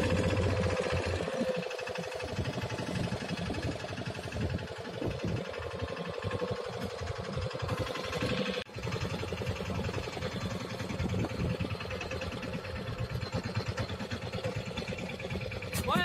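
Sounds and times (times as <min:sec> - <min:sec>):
boat engine running: 0:00.0 - 0:16.0.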